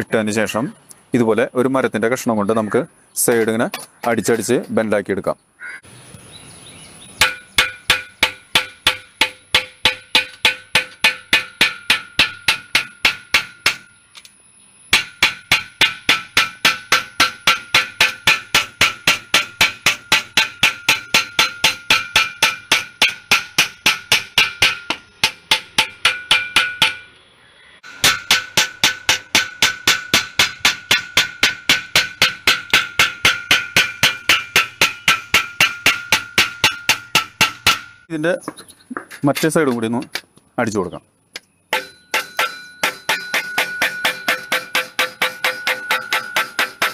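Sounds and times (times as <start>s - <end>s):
stick beating metal sheet: 7.2s - 13.9s, 14.9s - 27.1s, 27.8s - 38.1s, 41.7s - 46.9s.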